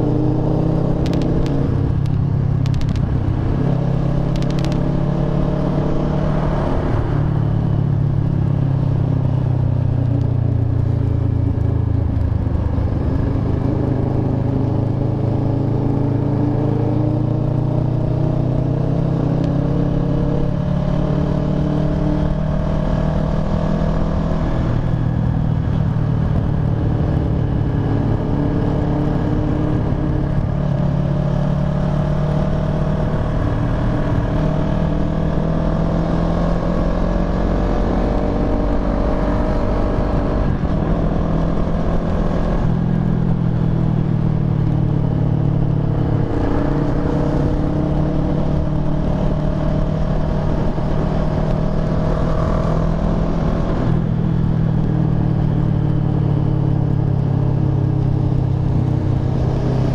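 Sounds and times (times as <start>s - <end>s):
motorcycle engine running: 0.0s - 18.7s, 19.7s - 59.9s
wind rumble on microphone: 0.0s - 59.9s.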